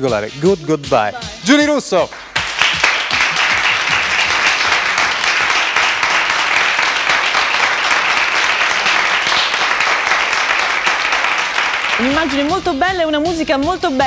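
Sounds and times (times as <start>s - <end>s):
studio audience applauding: 0.9s - 13.1s.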